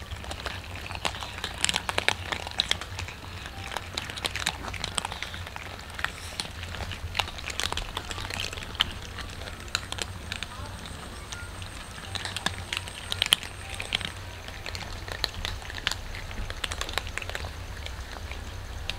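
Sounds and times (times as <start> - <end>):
cats crunching dry kibble: 0.0 - 18.9.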